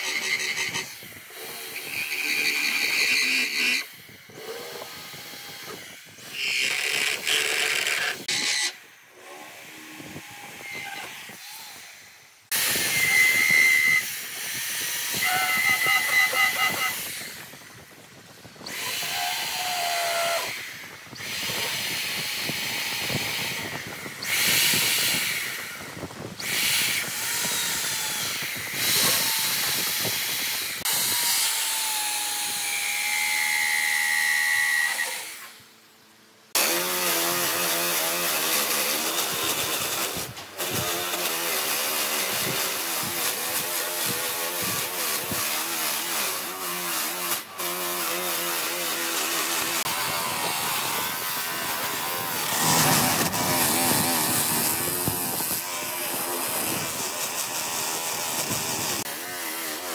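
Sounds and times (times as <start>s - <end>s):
electric drill sanding wood: 0.0s - 35.6s, 36.6s - 59.9s
sanding disc grinding wood: 12.5s - 20.7s, 36.6s - 59.9s.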